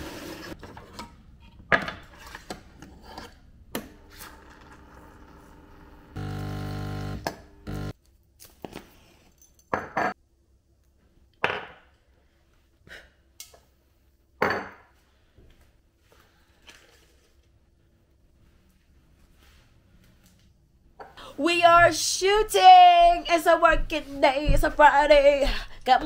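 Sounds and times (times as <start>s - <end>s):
machine hum: 3.8s - 7.9s.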